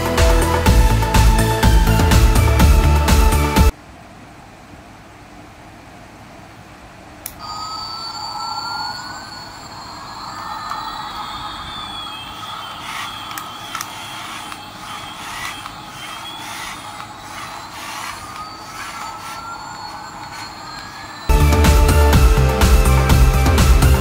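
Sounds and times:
electronic jet engine whine: 7.4s - 23.6s.

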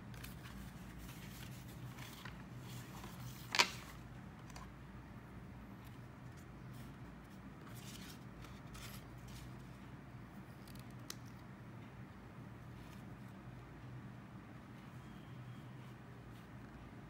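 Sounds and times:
low room hum: 0.0s - 17.0s
paper rustling: 0.1s - 4.7s, 6.3s - 9.8s.

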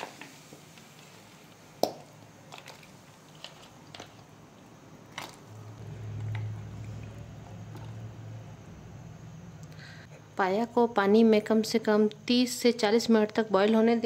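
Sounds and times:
low steady hum: 3.9s - 11.6s.

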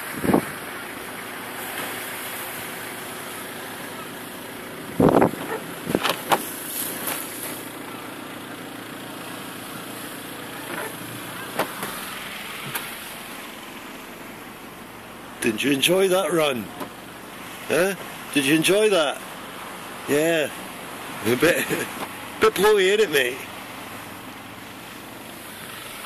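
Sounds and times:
muffled wind and surf: 0.0s - 0.6s, 4.8s - 6.4s.

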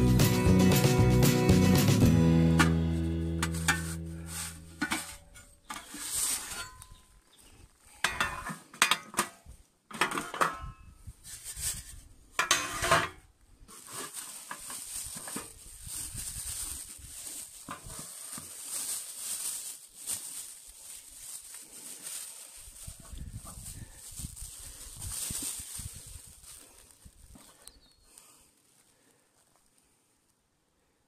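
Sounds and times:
metal knocks and scrapes: 3.4s - 6.8s, 8.0s - 9.3s, 12.4s - 13.2s.

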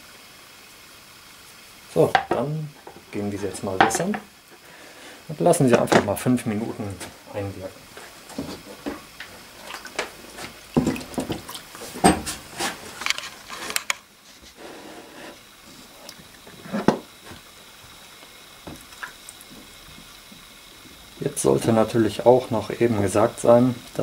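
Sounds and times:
wood clattering and knocking: 2.1s - 4.3s, 5.7s - 6.2s, 9.9s - 12.4s, 16.6s - 17.4s
water splashing in plastic box: 8.3s - 12.8s.

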